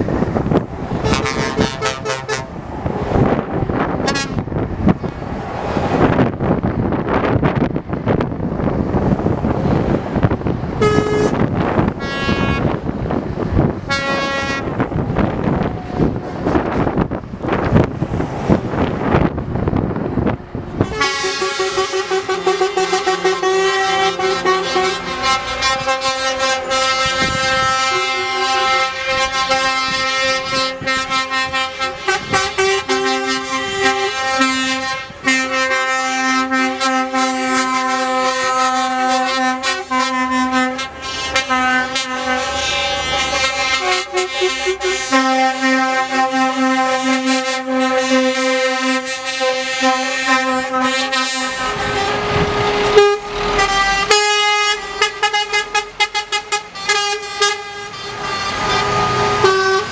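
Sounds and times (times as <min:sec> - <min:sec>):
truck air horns blaring: 0:00.0 - 0:05.3, 0:05.9 - 0:59.9
wind on microphone: 0:00.0 - 0:45.0, 0:49.9 - 0:54.2.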